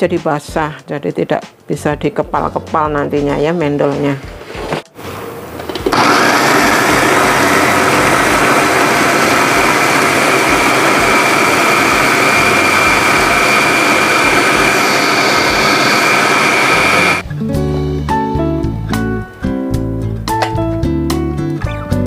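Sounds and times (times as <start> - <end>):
electric food chopper whirring: 5.7 - 17.2.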